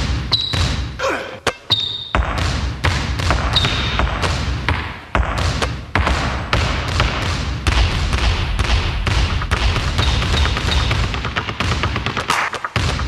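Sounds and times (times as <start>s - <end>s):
basketball bouncing on hard floor: 0.0s - 0.9s, 1.7s - 13.0s.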